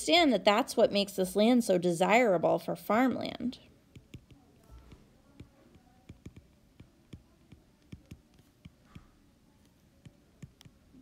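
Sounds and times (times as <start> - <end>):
stylus tapping on glass screen: 3.9 - 10.8.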